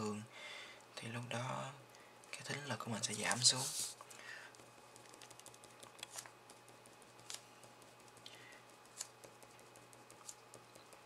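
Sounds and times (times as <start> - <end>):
low steady hum: 0.0 - 11.0
pen scratching on paper: 5.0 - 11.0.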